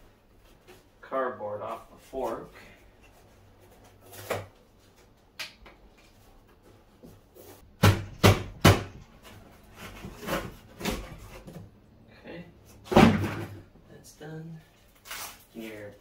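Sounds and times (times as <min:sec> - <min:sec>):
loud knocks: 0:07.8 - 0:09.0
cardboard scraping and handling: 0:09.2 - 0:11.6.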